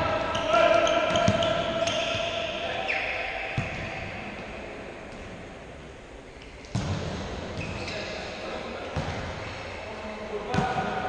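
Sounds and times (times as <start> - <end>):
shoe squeak: 7.6 - 8.2.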